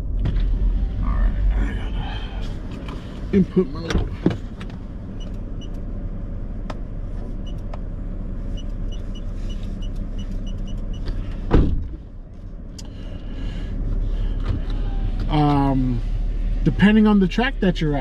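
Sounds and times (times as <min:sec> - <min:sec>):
car engine idling hum: 0:00.0 - 0:18.0
loud thump: 0:11.5 - 0:12.0.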